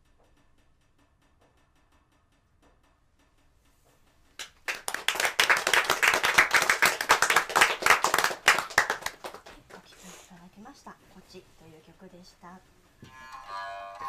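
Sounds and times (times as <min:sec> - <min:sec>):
audience applauding: 0:04.4 - 0:09.9.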